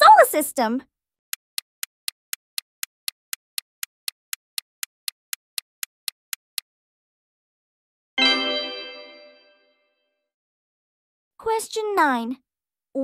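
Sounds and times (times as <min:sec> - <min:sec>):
clock-like ticks: 0:01.3 - 0:06.7.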